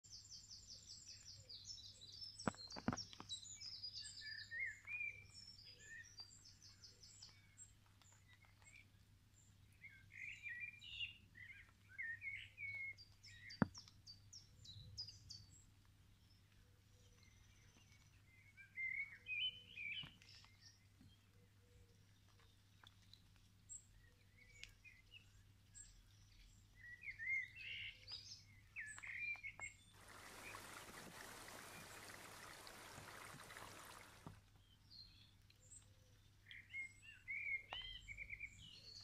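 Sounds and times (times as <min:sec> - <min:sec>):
songbirds singing: 0:00.0 - 0:39.0.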